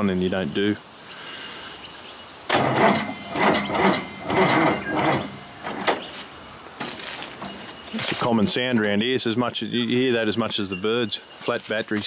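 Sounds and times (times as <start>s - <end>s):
diesel engine cranking slowly: 2.5s - 6.1s.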